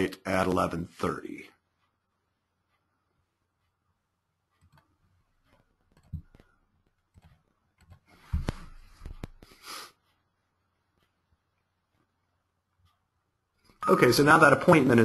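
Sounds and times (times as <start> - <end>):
computer mouse clicks: 4.5 - 9.5.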